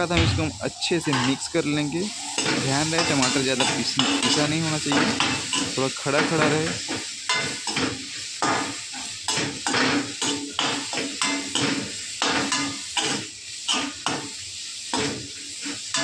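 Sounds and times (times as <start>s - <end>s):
frying sizzle: 0.0s - 16.0s
metal spoon scraping a pan: 1.0s - 5.8s.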